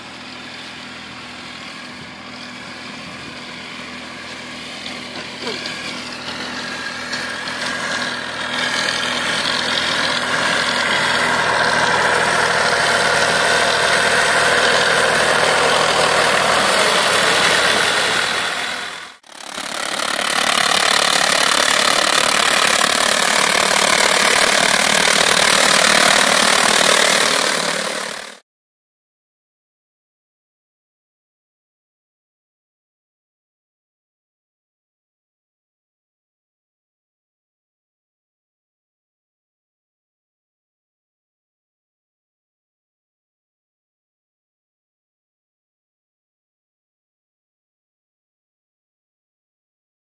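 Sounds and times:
tractor engine running: 0:00.0 - 0:28.4.

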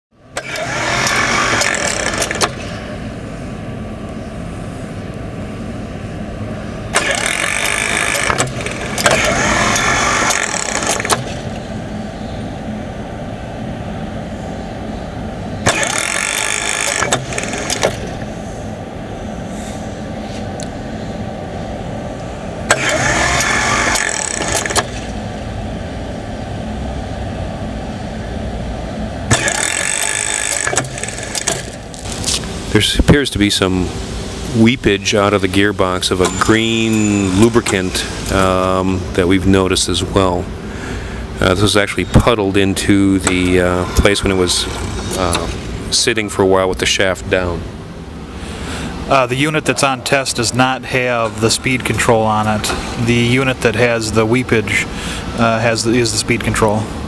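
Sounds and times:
steady hum: 0:00.1 - 0:57.0
motor driving belt: 0:00.3 - 0:03.0, 0:06.9 - 0:12.1, 0:15.6 - 0:27.0, 0:28.8 - 0:33.0, 0:35.2 - 0:39.0, 0:42.2 - 0:46.1.

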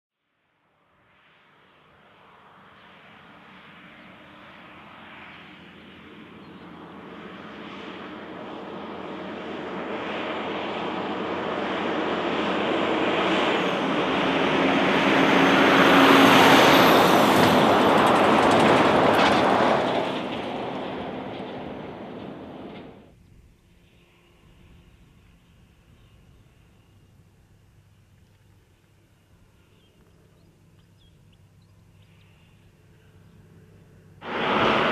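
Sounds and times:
truck passing at speed: 0:06.3 - 0:23.1, 0:34.2 - 0:34.9.

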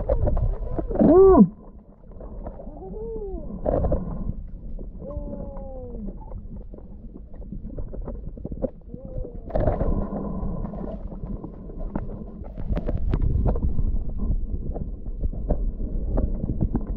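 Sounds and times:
rush of water: 0:00.0 - 0:14.3
low underwater rumble: 0:00.0 - 0:16.9
clicks and crackles: 0:03.6 - 0:16.9.

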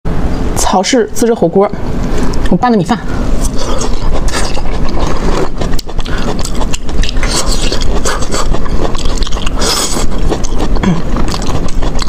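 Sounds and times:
wet chewing and mouth sounds: 0:03.3 - 0:12.0.

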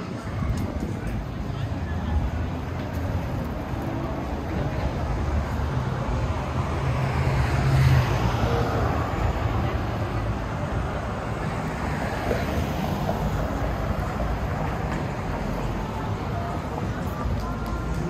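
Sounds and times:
traffic rumble: 0:00.0 - 0:18.0
vehicle passing: 0:01.7 - 0:18.0.

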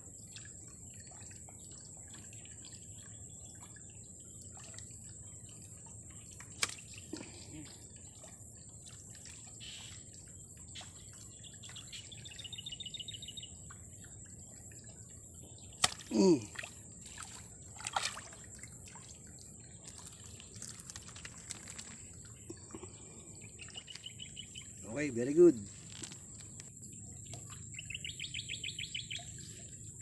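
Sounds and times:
fish splashing in water: 0:05.8 - 0:10.1, 0:14.8 - 0:24.8.

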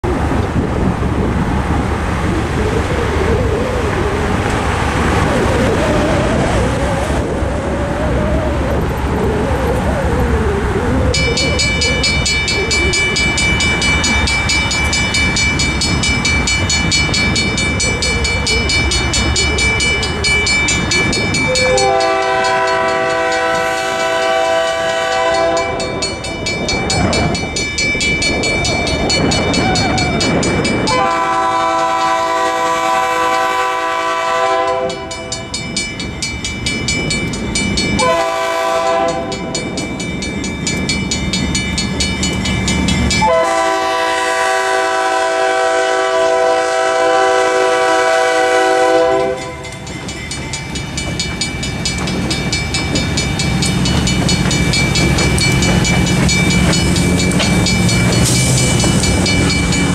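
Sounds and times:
road traffic: 0:00.0 - 0:59.9
crossing bell ringing rapidly: 0:11.1 - 0:32.8, 0:34.1 - 0:59.9
locomotive horn blasts: 0:21.6 - 0:26.1, 0:30.9 - 0:35.5, 0:38.0 - 0:39.5, 0:43.2 - 0:49.8.

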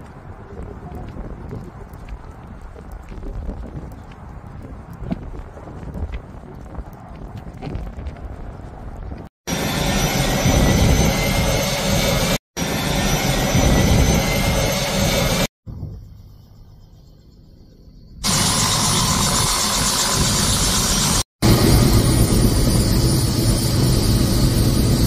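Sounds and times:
helicopter engine and rotor: 0:09.5 - 0:15.5, 0:18.2 - 0:25.0.

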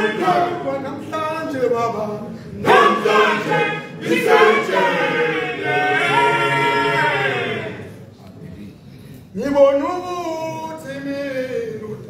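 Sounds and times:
men's choir singing in harmony: 0:00.0 - 0:02.0, 0:02.6 - 0:08.0.

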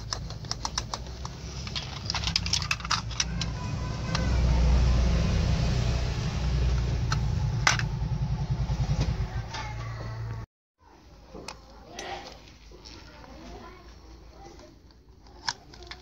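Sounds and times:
plastic toy clicks and rattles: 0:00.0 - 0:04.3, 0:14.8 - 0:16.0
toy truck rolling: 0:00.0 - 0:04.6, 0:15.1 - 0:16.0.

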